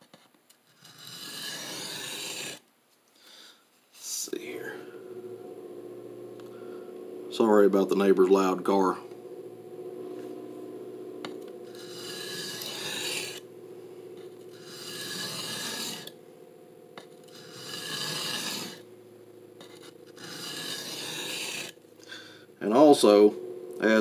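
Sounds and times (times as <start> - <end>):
knife blade grinding on diamond plate: 0.8 - 2.6, 11.7 - 13.4, 14.5 - 16.2, 17.0 - 18.8, 19.6 - 22.2.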